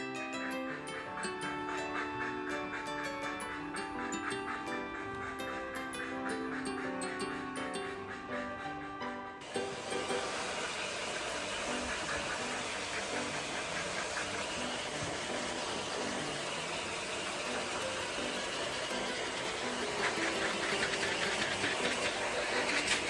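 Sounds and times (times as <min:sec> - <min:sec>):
grooming dryer blowing air: 0:09.4 - 0:23.0.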